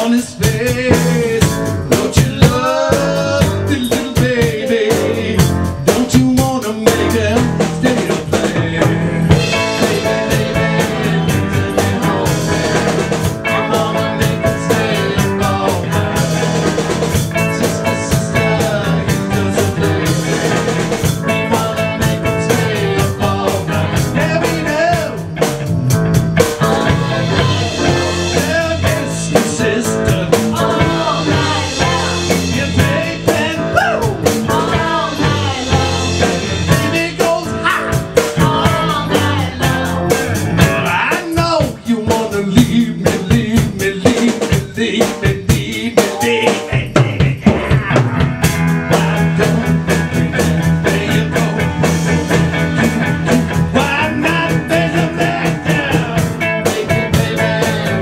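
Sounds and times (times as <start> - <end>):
drum kit: 0.0 - 58.0
electric bass line: 0.0 - 58.0
keyboard: 0.0 - 58.0
electric guitar: 6.8 - 43.8, 45.4 - 58.0.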